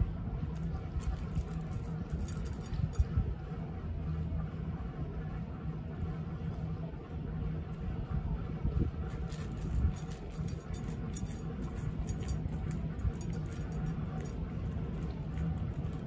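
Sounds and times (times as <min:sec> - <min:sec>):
low background rumble: 0:00.0 - 0:16.0
cat crunching dry kibble: 0:09.0 - 0:16.0.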